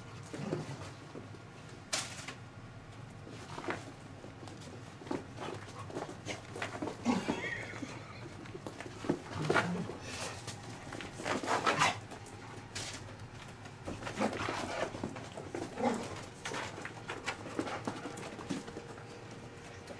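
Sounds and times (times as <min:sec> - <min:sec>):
dogs play-fighting: 0:00.0 - 0:01.5, 0:03.2 - 0:19.9.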